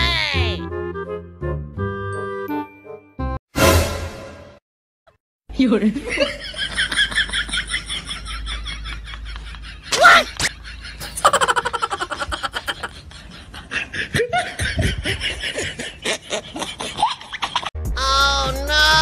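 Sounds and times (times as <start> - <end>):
person laughing and snickering: 9.3 - 17.7.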